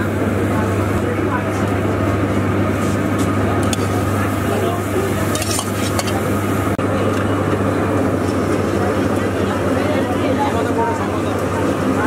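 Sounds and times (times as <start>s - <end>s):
steady low hum: 0.0s - 12.0s
ladle clinking and scraping griddle: 5.0s - 6.4s.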